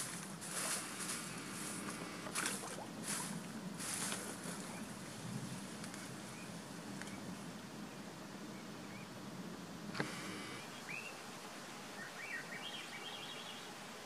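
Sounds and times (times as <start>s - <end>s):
outdoor background noise: 0.0s - 14.0s
faint bird calls: 10.0s - 13.9s.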